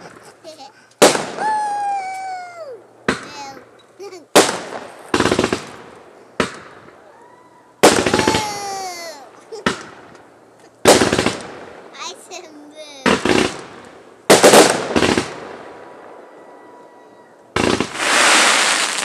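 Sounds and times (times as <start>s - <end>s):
crackling firework pops: 0.0s - 1.6s, 3.0s - 7.0s, 7.8s - 8.8s, 9.5s - 11.8s, 13.0s - 15.6s, 17.6s - 19.0s
firework shells bursting: 0.0s - 2.4s, 3.0s - 7.1s, 7.8s - 16.2s, 17.5s - 19.0s
whistling firework: 1.0s - 2.7s, 6.4s - 8.8s, 14.4s - 19.0s.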